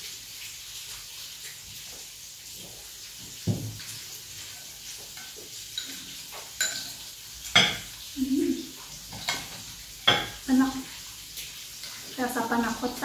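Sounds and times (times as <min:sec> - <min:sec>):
spoons clinking on ceramic bowls: 0:05.2 - 0:06.0, 0:06.6 - 0:07.9, 0:09.2 - 0:10.4.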